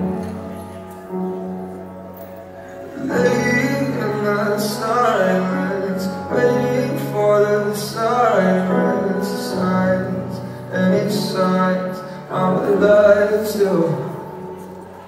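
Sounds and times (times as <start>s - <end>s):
man singing: 2.9s - 14.4s.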